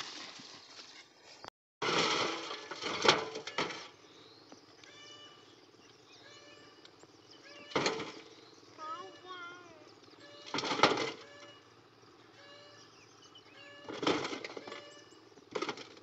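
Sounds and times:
earth dropped into metal wheelbarrow: 0:00.0 - 0:01.0, 0:01.8 - 0:04.0, 0:07.7 - 0:08.3, 0:10.5 - 0:11.4, 0:13.9 - 0:14.9
faint high animal calls: 0:04.8 - 0:07.9, 0:08.8 - 0:10.6, 0:11.2 - 0:14.0.

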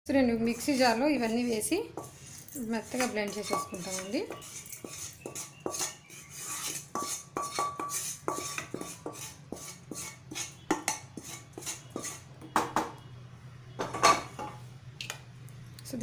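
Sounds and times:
spoon scraping a pan: 0:00.4 - 0:13.0.

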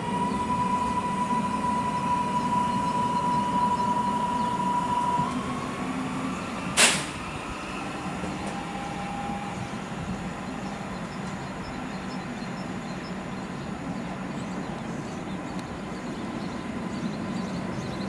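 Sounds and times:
electric train drive whining: 0:00.0 - 0:11.7
short sharp hiss: 0:06.8 - 0:07.2.

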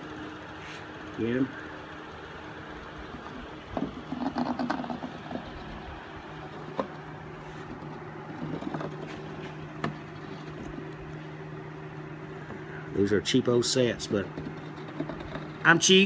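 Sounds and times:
steady low hum: 0:00.0 - 0:16.0
metal compass scraping on wood: 0:02.9 - 0:11.2, 0:13.7 - 0:16.0.

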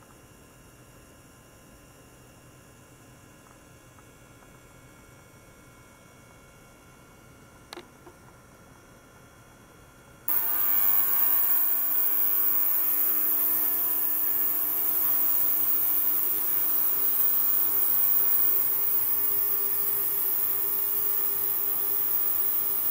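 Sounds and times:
steady humming tones: 0:10.3 - 0:22.9
ultrasonic cleaner hissing: 0:10.3 - 0:22.9.

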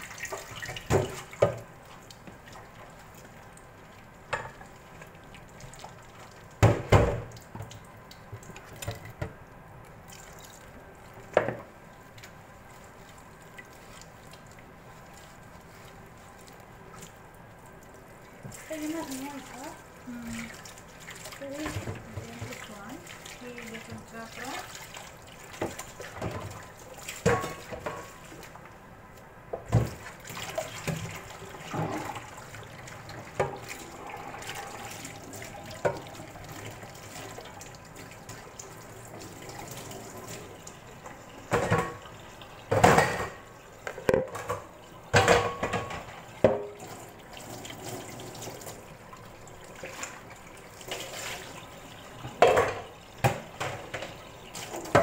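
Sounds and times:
liquid pouring and dripping: 0:00.0 - 0:28.8, 0:29.6 - 0:43.1, 0:45.1 - 0:55.0
knocks and clatters of handling: 0:42.7 - 0:46.7.

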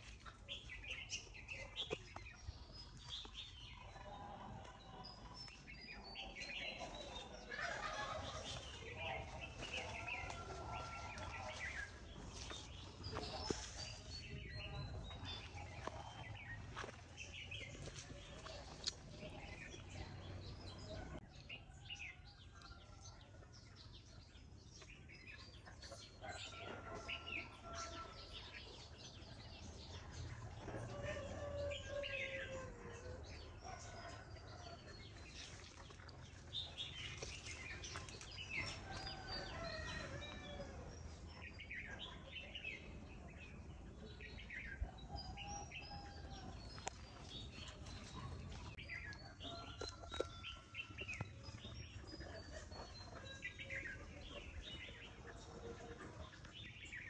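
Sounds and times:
birds chirping: 0:00.0 - 0:22.3, 0:24.0 - 0:57.0.

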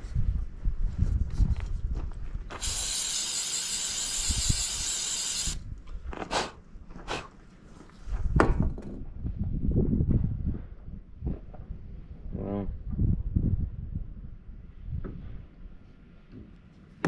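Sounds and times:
aerosol spray can hissing: 0:02.5 - 0:05.6.

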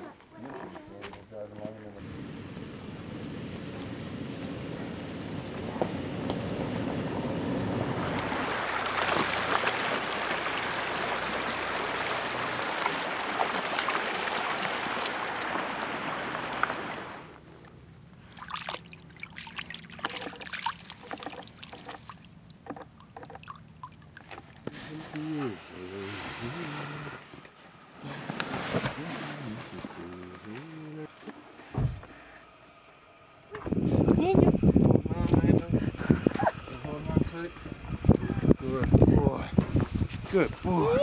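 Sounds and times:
vehicle engine running: 0:01.7 - 0:12.6
creek rushing and trickling: 0:07.6 - 0:17.4, 0:18.2 - 0:30.2
splashes and rustles: 0:07.7 - 0:17.4, 0:18.2 - 0:30.7.

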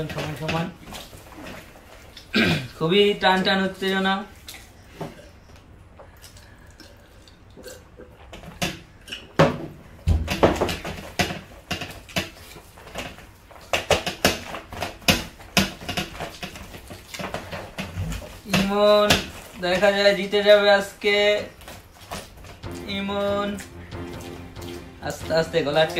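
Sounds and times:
chewing and lip smacking: 0:05.5 - 0:08.4.

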